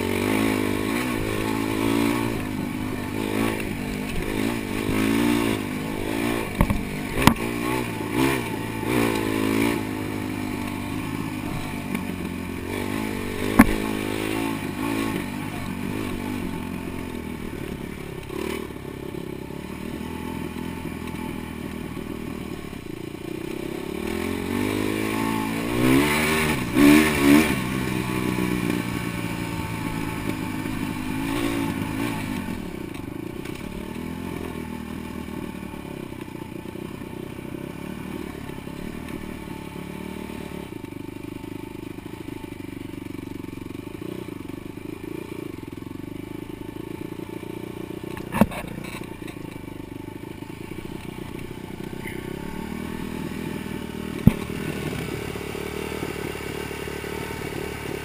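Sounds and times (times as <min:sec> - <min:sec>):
dirt bike engine revving: 0:00.0 - 0:22.9, 0:23.5 - 0:36.2, 0:37.4 - 0:40.9, 0:46.3 - 0:58.0.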